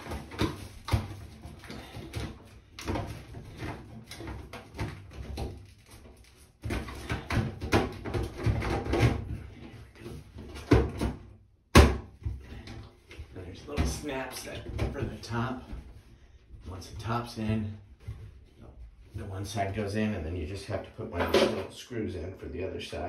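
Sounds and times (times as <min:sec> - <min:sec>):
knocks and clicks on ceiling: 0:00.0 - 0:16.1.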